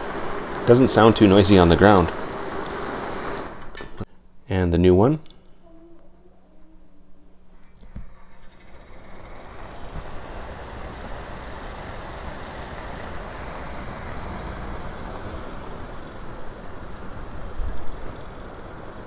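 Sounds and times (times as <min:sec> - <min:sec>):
bath fan whooshing: 0:07.4 - 0:19.0.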